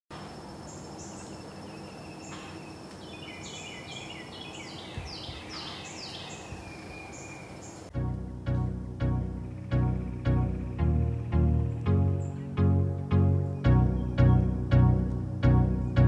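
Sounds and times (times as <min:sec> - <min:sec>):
background music with bass line: 0:07.9 - 0:16.0.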